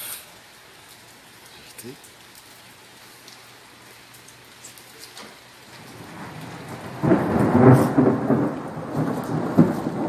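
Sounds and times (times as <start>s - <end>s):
steady rain: 0.0s - 10.0s
thunder rumbling: 5.7s - 10.0s.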